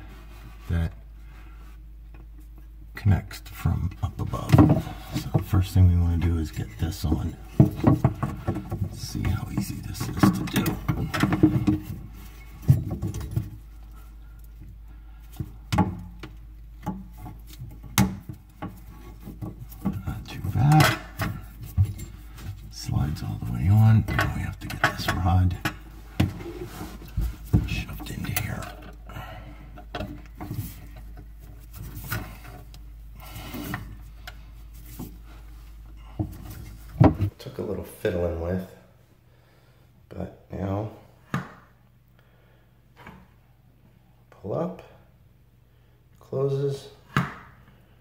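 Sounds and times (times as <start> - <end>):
handling knocks and rubs: 3.7 - 29.0, 29.8 - 37.4.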